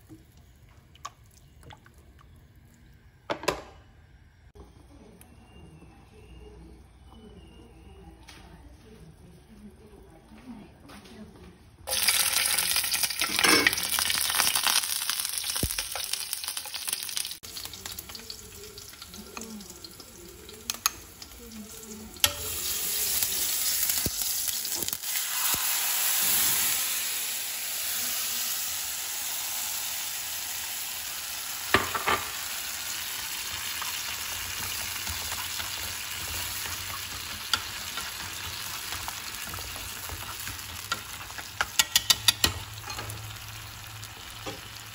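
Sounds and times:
sauce poured into hot oil: 11.9 - 21.3, 22.2 - 41.5
hot oil sizzling in a frying pan: 11.9 - 44.9.

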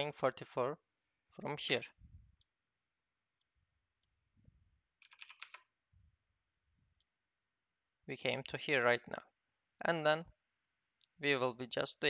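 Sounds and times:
keyboard keystrokes: 5.0 - 5.6
computer mouse clicks: 5.0 - 5.7.

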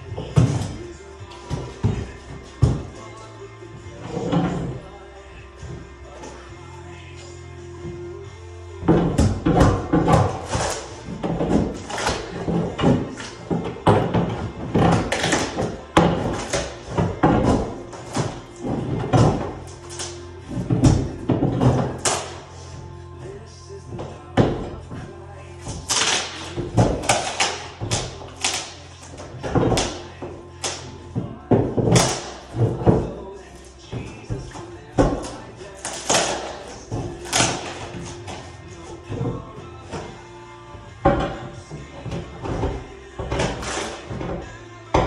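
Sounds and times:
plywood cracking and knocking: 8.8 - 22.5, 23.9 - 45.0
floor scraper striking and scraping: 8.8 - 45.0.

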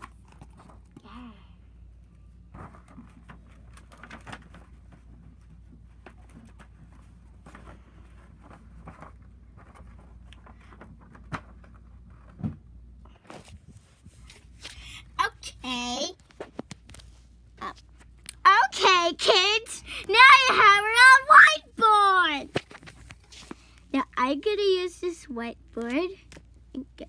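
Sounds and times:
clicks and rustles of handling: 0.0 - 1.1, 2.0 - 14.8, 16.1 - 18.4, 22.4 - 23.9.

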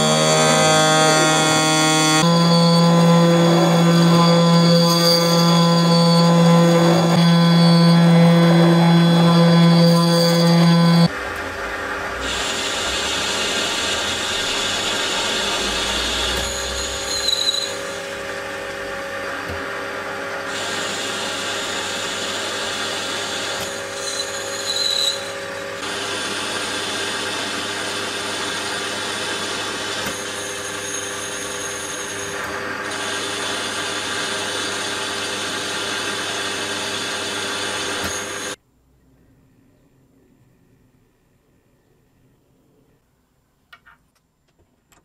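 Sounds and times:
high squeals: 0.0 - 11.1, 12.2 - 18.6, 20.4 - 25.8
lathe machine whine: 0.0 - 38.6.

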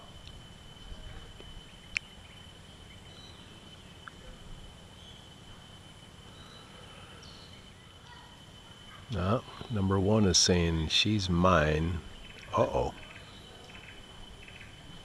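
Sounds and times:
faint bird chirps: 0.0 - 15.0
steady high-pitched hum: 0.0 - 15.0.

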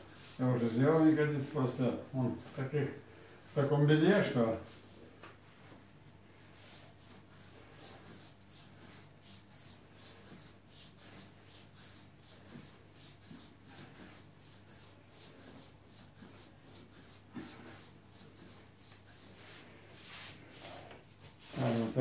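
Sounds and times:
hands rubbing over skin: 5.6 - 22.0.

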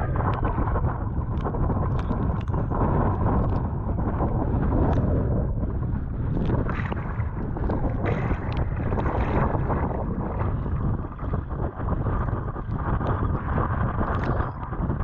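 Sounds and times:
water rushing along hull: 0.0 - 15.0
wind buffeting microphone: 0.0 - 15.0
paddle splashes: 6.3 - 14.8.

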